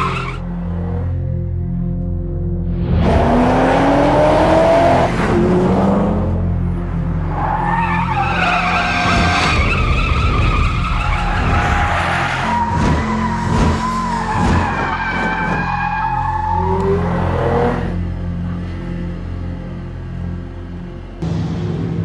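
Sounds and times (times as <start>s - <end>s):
car engine revving: 2.8s - 20.3s.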